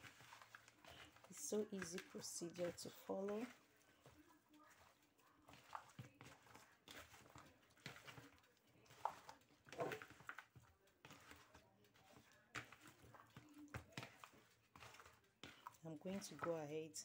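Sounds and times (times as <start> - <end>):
hand mixing fish in bowl: 0.0 - 17.0.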